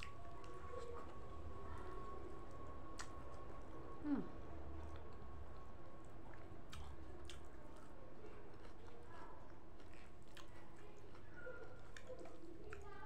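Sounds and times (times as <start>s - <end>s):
low hum: 0.0s - 8.3s
chewing food: 0.0s - 13.0s.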